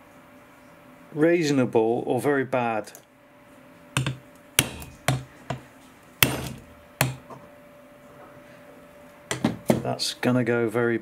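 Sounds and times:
hammer striking chisel: 0:04.0 - 0:05.6, 0:06.2 - 0:07.3.

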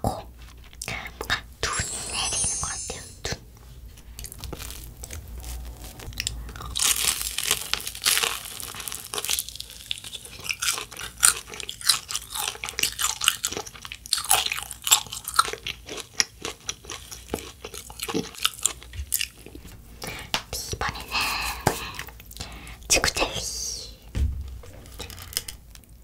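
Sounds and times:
crisp crust crackling: 0:04.0 - 0:19.7
crunchy chewing: 0:04.2 - 0:19.8.

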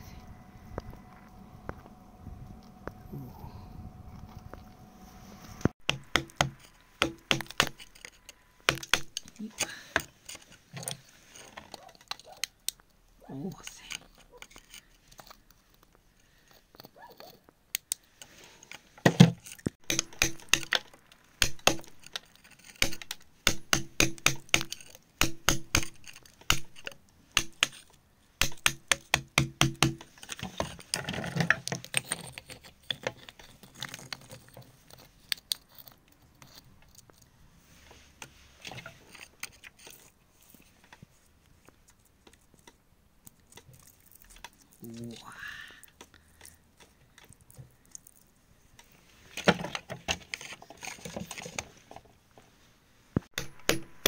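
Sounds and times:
metal tool scraping dirt on stone: 0:05.7 - 0:12.5, 0:13.8 - 0:17.5, 0:18.1 - 0:41.0, 0:49.1 - 0:52.0.

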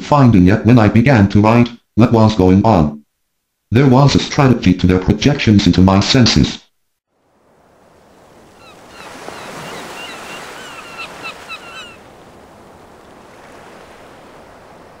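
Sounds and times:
sea waves washing on shore: 0:07.2 - 0:15.0
short clipped bird calls: 0:08.6 - 0:12.0.

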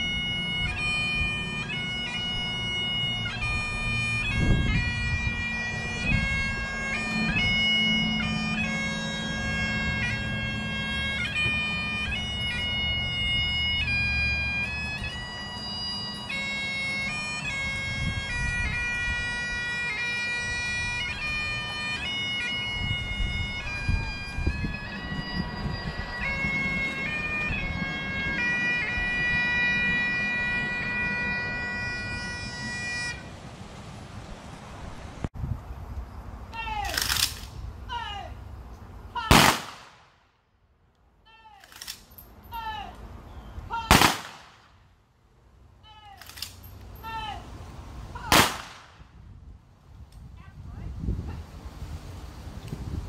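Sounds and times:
bagpipes playing slow tune: 0:00.0 - 0:33.3
wind on microphone: 0:03.4 - 0:07.7, 0:17.6 - 0:19.7, 0:22.5 - 0:36.0, 0:48.1 - 0:53.0
rifle volley cracks: 0:36.8 - 0:37.6, 0:39.2 - 0:40.3, 0:43.8 - 0:44.8, 0:48.3 - 0:49.1
shouted drill commands: 0:37.9 - 0:38.4, 0:42.5 - 0:43.0, 0:47.0 - 0:47.5.

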